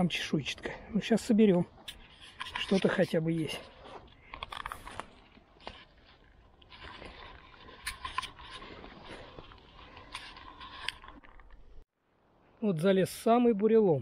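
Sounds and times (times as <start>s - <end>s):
twigs snapping and scraping: 1.0s - 11.9s.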